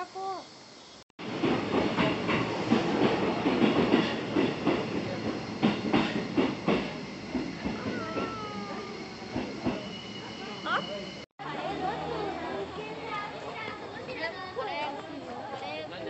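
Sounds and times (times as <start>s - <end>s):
train wheels clattering over rail joints: 1.2s - 8.6s
train rumble: 1.2s - 14.5s.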